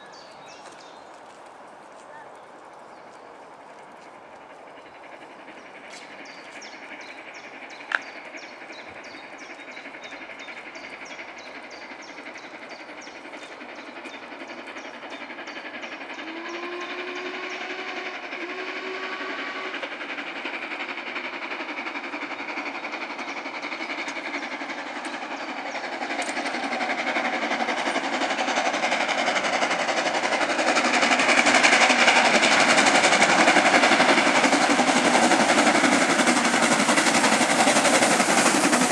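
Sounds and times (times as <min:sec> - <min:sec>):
steam locomotive approaching: 0:00.0 - 0:38.9
deep locomotive whistle blasts: 0:16.2 - 0:19.8.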